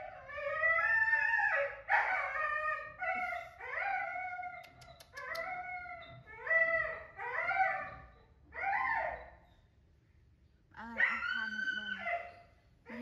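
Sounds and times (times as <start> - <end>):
faint clicks: 4.6 - 5.5.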